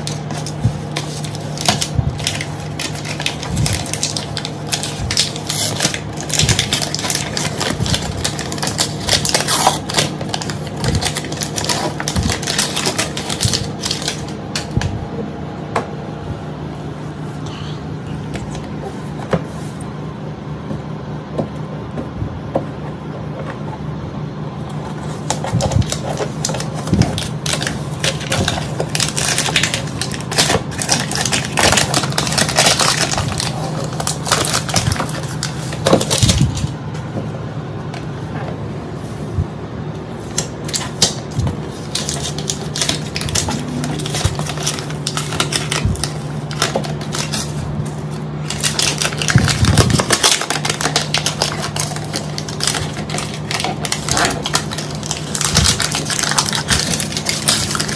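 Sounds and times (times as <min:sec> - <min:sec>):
plastic film being peeled off: 0:00.0 - 0:14.7, 0:25.1 - 0:36.7, 0:40.6 - 0:57.9
steady low hum: 0:00.0 - 0:57.9.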